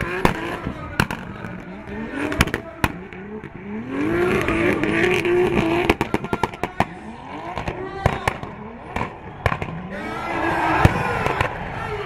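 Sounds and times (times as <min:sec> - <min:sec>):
exhaust pops and cracks: 0:00.0 - 0:03.6, 0:04.3 - 0:06.9, 0:07.6 - 0:09.8
car engine revving hard: 0:00.0 - 0:11.7.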